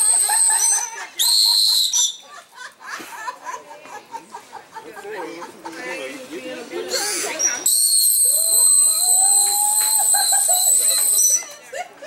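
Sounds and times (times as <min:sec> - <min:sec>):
whistle blasts: 0:00.0 - 0:02.2, 0:07.4 - 0:11.6
voices: 0:00.0 - 0:12.0.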